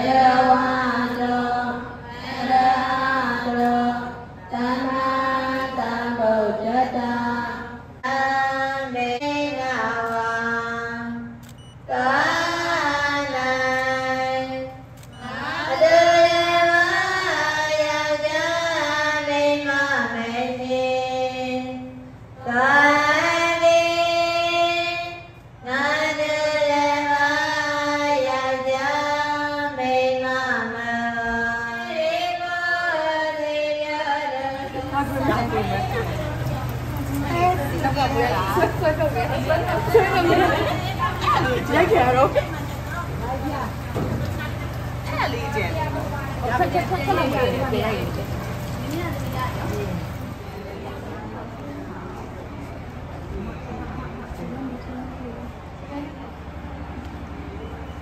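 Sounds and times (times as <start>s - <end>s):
woman singing a slow chant: 0.0s - 42.2s.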